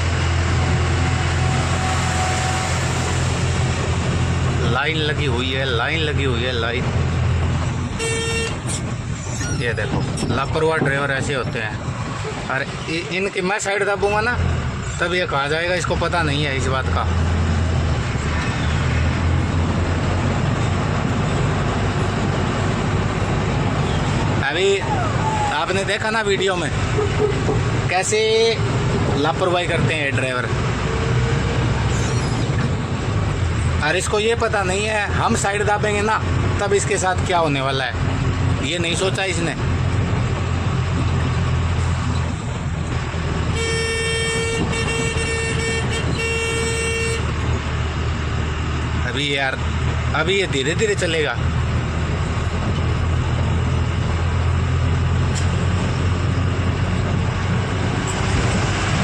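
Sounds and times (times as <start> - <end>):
road noise: 0.0 - 59.0
truck engine droning: 0.0 - 59.0
vehicle horn blasts: 8.0 - 8.6, 43.5 - 47.3.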